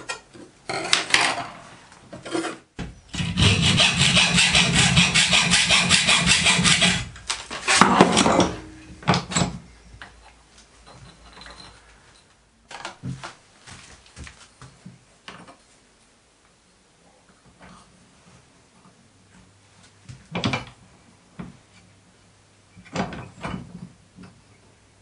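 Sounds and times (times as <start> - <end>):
hacksaw cutting metal: 2.3 - 8.6
metal tools clattering: 7.6 - 9.6, 10.8 - 11.9.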